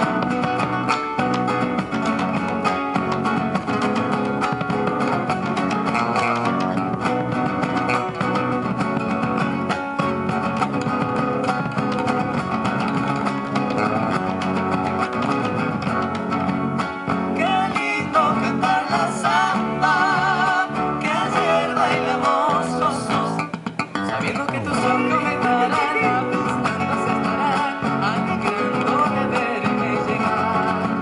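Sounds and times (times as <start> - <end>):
acoustic guitars strummed: 0.0 - 31.0
bass drum: 0.0 - 31.0
electric bass: 0.0 - 31.0
people singing: 17.2 - 31.0.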